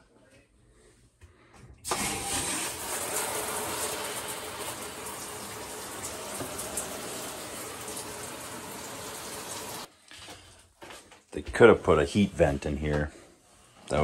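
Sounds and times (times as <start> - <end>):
tap water running: 1.8 - 9.9.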